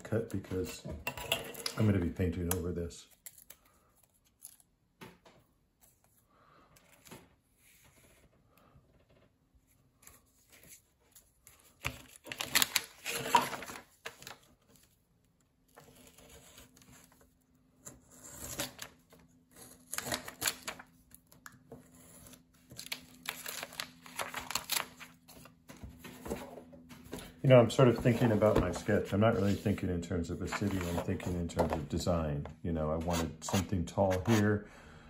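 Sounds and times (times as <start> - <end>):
paper rustling: 9.6 - 15.0, 15.7 - 31.9.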